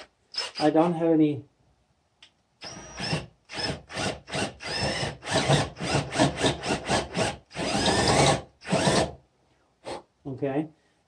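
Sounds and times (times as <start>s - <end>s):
cordless drill motor whining: 2.6s - 9.1s.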